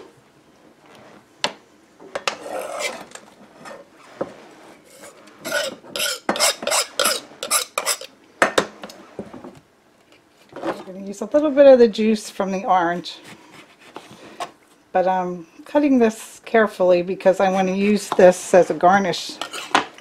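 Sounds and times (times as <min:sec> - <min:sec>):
knife scraping cutting board: 0:02.4 - 0:08.1, 0:19.4 - 0:19.9.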